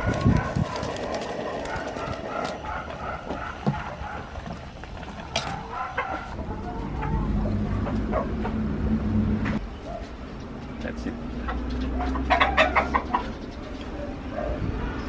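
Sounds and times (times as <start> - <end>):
chicken clucking: 11.5 - 13.8.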